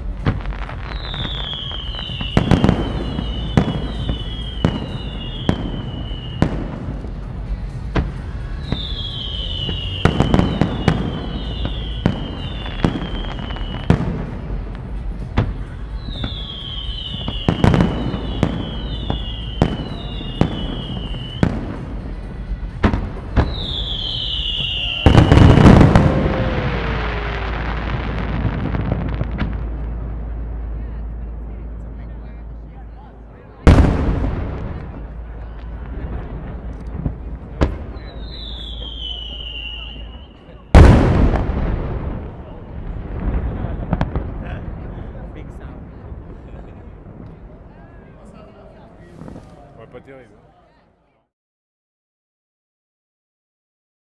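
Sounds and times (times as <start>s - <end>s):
fireworks crackle: 0.0s - 32.6s, 33.5s - 50.0s
fireworks bangs: 0.0s - 50.0s
high falling whistles: 23.5s - 27.7s, 38.1s - 40.4s.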